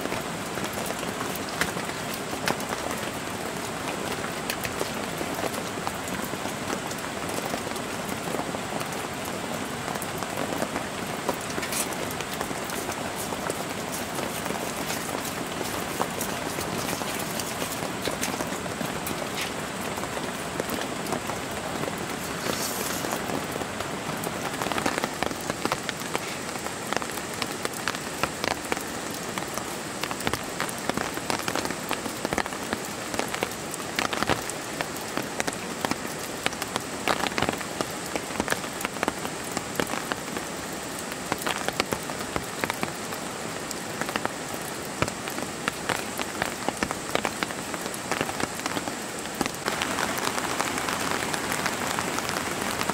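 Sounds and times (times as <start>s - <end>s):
rain falling on a tent: 0.0s - 52.9s.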